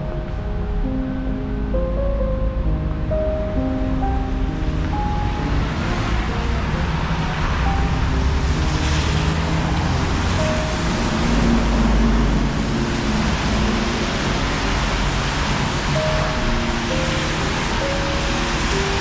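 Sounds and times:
soft music with slow held notes: 0:00.0 - 0:19.0
street traffic: 0:00.0 - 0:19.0
wind: 0:00.0 - 0:19.0.

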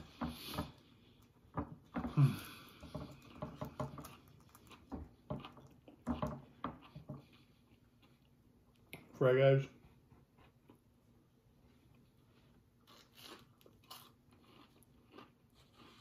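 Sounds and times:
chewing food: 0:00.0 - 0:09.1, 0:09.8 - 0:16.0.

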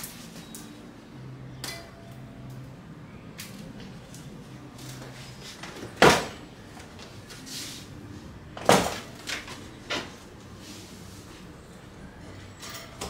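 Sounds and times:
bike parts and packaging handled: 0:00.0 - 0:11.6.

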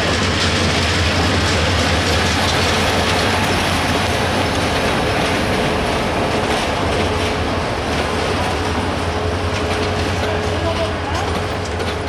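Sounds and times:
train wheels clattering on rails: 0:00.0 - 0:12.0.

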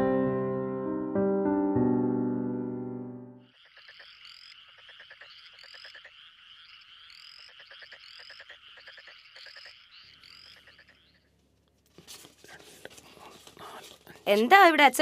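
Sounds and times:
frogs croaking in rattling runs: 0:03.4 - 0:11.6.

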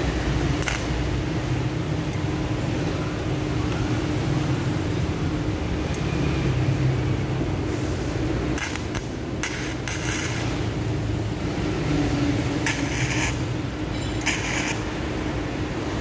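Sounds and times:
welder arc crackling: 0:00.4 - 0:02.3, 0:08.4 - 0:11.4, 0:12.4 - 0:15.0.

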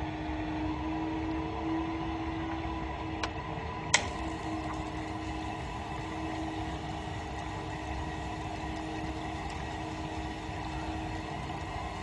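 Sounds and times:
steady machine hum: 0:03.9 - 0:12.0.

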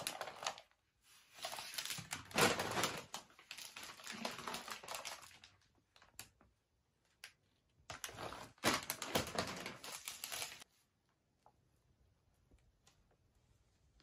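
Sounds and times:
gift packaging crinkling: 0:01.3 - 0:06.2, 0:07.9 - 0:10.6.

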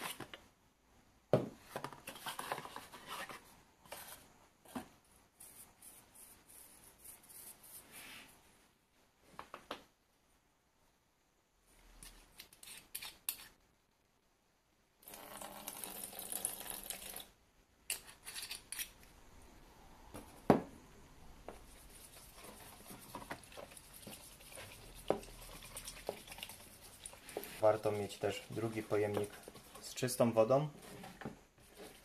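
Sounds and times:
liquid poured into plastic tub: 0:23.4 - 0:27.7.

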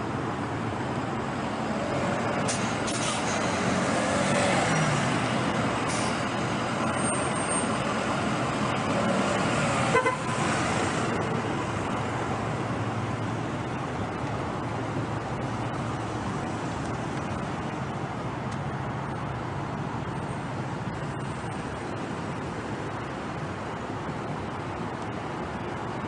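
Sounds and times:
road traffic: 0:00.0 - 0:26.0
vehicle horn toot: 0:09.9 - 0:10.3.

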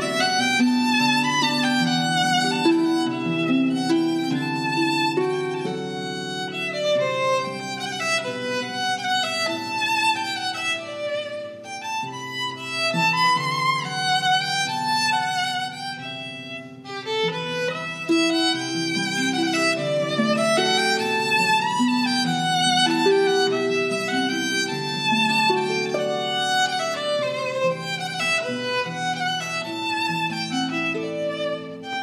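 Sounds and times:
harp playing: 0:00.0 - 0:32.0.

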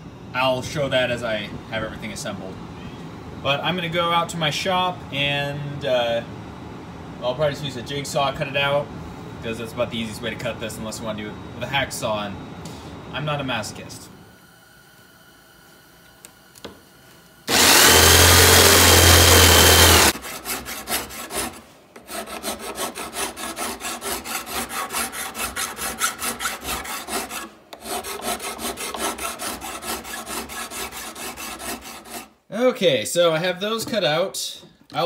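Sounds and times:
hand tool strokes on steel: 0:17.5 - 0:32.3
jigsaw cutting sheet steel: 0:17.5 - 0:32.3.

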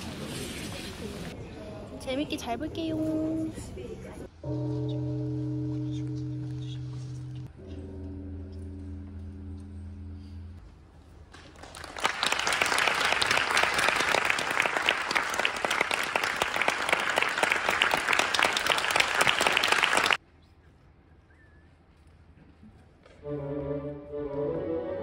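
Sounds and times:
audience applauding: 0:11.4 - 0:20.2.

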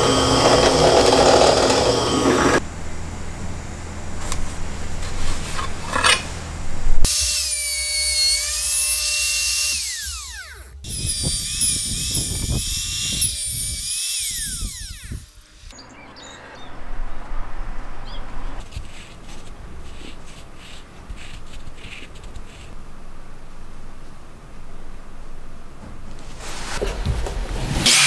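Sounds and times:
router motor whine: 0:00.0 - 0:02.6, 0:07.0 - 0:15.8.

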